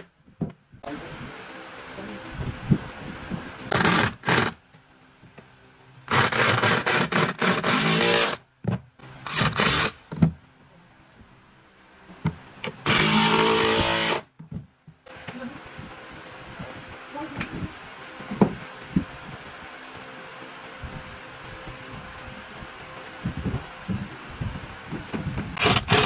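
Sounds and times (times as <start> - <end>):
electric drill driving screws: 3.7 - 4.6, 6.1 - 8.4, 9.2 - 10.0, 12.8 - 14.3, 25.6 - 26.0.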